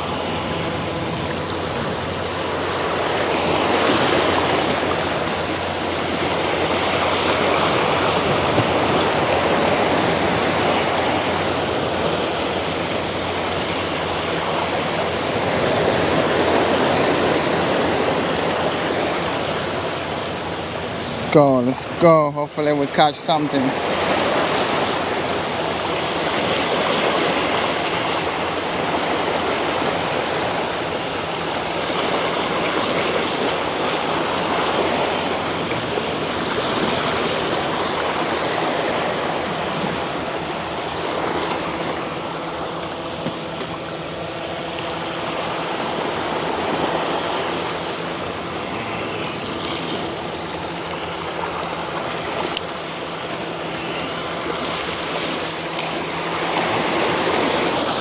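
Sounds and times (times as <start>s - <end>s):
sea waves washing against rocks: 0.0s - 58.0s.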